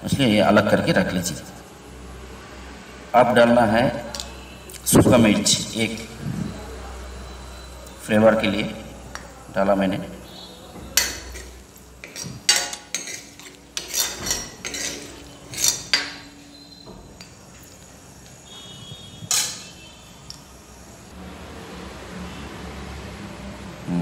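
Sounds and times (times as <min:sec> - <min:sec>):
metal utensil scraping a pan: 0:11.0 - 0:16.8, 0:19.3 - 0:19.8
oil sizzling: 0:11.0 - 0:21.1.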